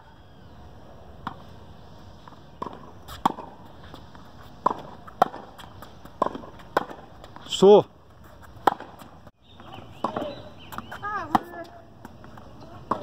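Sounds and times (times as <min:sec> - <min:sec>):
tennis ball bounces: 0:02.3 - 0:07.6, 0:08.3 - 0:13.0.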